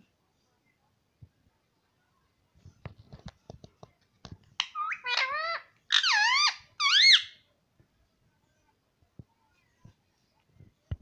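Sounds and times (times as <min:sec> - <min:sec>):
parakeet squeaky calls: 0:04.6 - 0:07.4.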